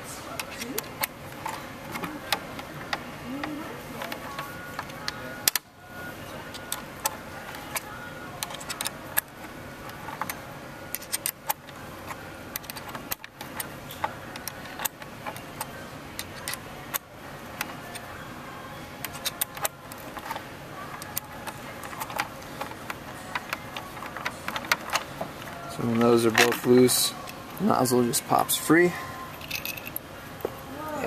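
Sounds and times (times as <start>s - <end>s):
wrench clicking and clinking: 29.3s - 30.0s.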